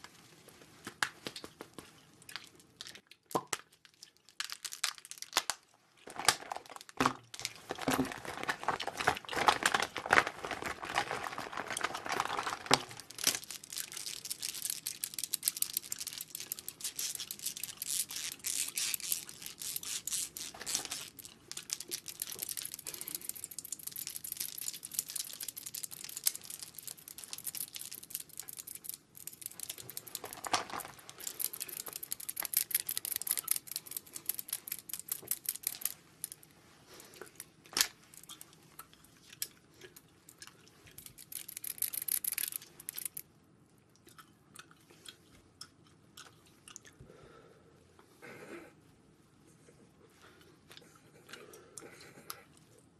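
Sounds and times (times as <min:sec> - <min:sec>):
packaging crinkling and clicking: 0:03.6 - 0:36.4, 0:41.0 - 0:43.2.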